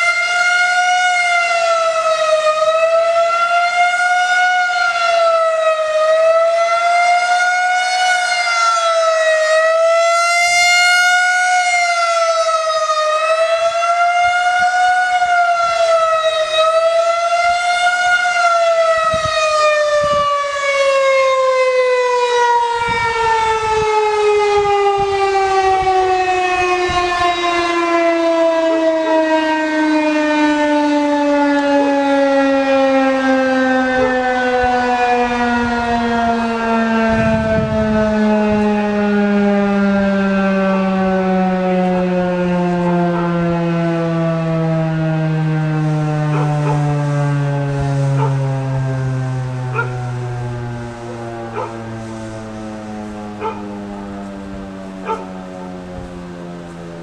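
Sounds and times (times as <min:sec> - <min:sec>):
siren winding down: 0:00.0 - 0:57.0
warning siren wailing: 0:00.0 - 0:57.0.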